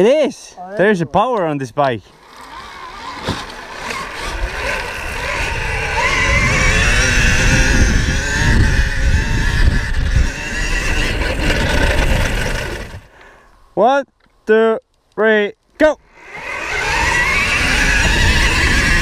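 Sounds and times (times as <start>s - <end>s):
electric motor whining: 2.2s - 13.1s, 16.0s - 19.0s
wind and tyre rumble: 2.9s - 13.1s, 16.4s - 19.0s.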